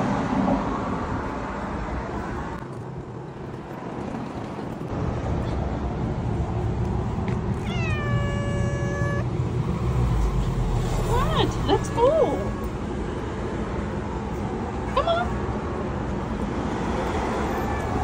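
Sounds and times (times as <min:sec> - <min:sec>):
cat meowing: 0:07.6 - 0:09.3, 0:17.4 - 0:18.0.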